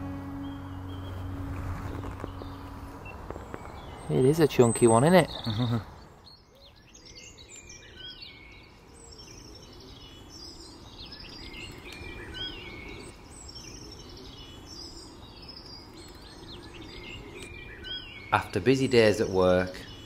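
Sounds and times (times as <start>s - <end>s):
low background rumble: 0.0s - 4.1s
songbirds chirping: 0.0s - 20.0s.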